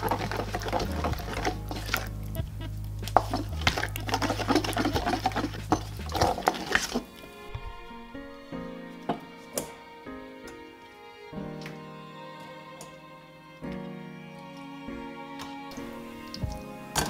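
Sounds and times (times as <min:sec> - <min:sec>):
utensil stirring in glass bowl: 0:00.0 - 0:02.0, 0:03.2 - 0:07.0
music: 0:00.0 - 0:17.0.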